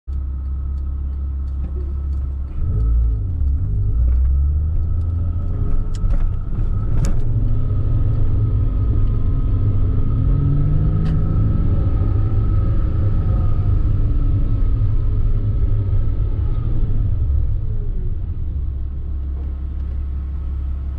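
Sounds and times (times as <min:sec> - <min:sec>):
car engine from inside cabin: 0:00.1 - 0:20.9.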